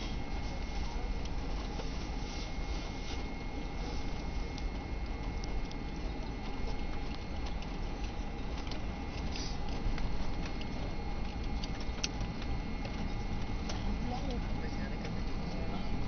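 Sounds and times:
airliner cabin low rumble: 0:00.0 - 0:16.0
faint high whine: 0:00.0 - 0:16.0
light clicks and rattles: 0:04.5 - 0:15.4.

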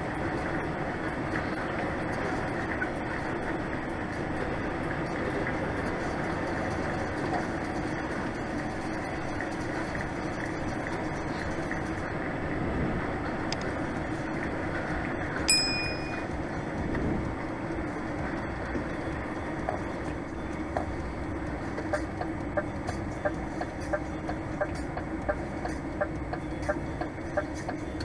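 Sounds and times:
short metallic ping: 0:15.5 - 0:16.3.

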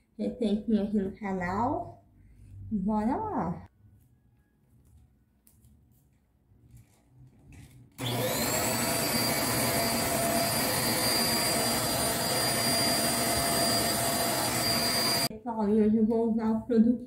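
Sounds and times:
vacuum cleaner motor whine: 0:08.0 - 0:15.3.

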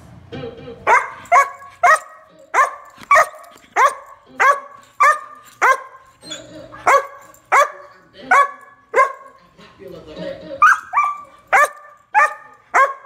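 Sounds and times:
large dog barking: 0:00.9 - 0:06.0, 0:06.8 - 0:09.4, 0:10.6 - 0:13.0.

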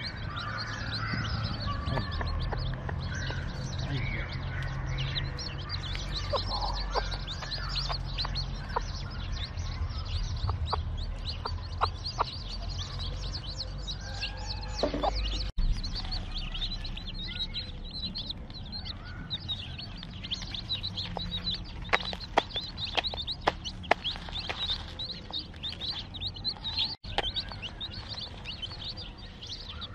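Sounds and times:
chicks peeping: 0:00.0 - 0:29.9
hen clucking: 0:05.8 - 0:09.1, 0:10.4 - 0:16.2.

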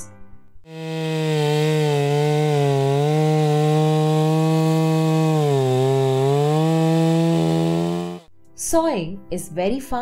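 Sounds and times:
chainsaw cutting log: 0:00.6 - 0:08.3.

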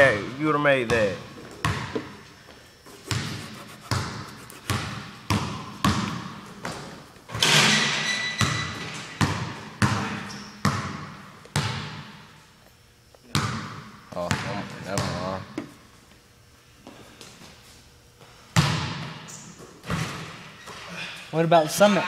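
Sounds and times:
basketball bouncing on gym floor: 0:00.8 - 0:02.2, 0:03.1 - 0:07.0, 0:08.0 - 0:12.3, 0:13.2 - 0:15.7, 0:18.6 - 0:20.8.

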